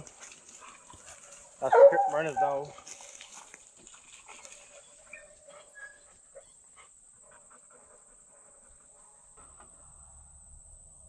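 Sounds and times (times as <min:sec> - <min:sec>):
dog panting: 0:00.1 - 0:09.6
insects droning: 0:04.8 - 0:11.0.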